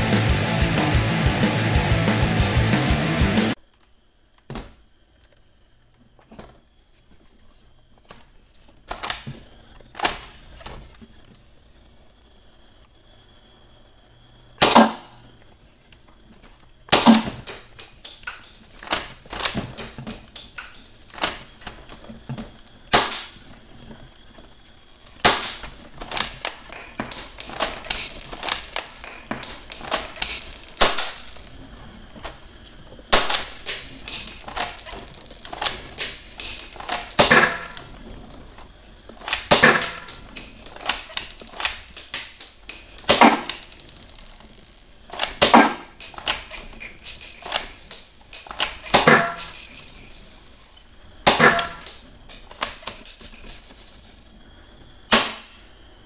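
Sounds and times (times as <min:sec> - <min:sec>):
toy rifle clicks and rattles: 0:17.4 - 0:21.7, 0:25.3 - 0:31.6, 0:33.2 - 0:38.0, 0:39.2 - 0:50.8.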